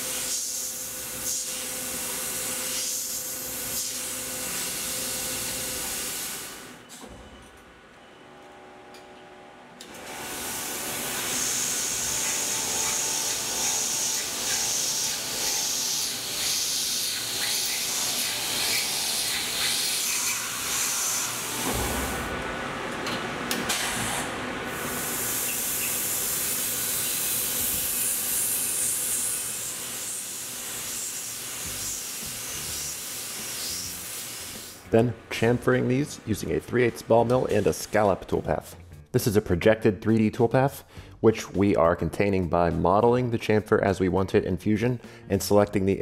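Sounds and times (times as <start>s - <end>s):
mill spindle cutting metal: 9.9s - 22.4s, 24.7s - 34.8s
coolant spray hissing: 24.7s - 34.8s.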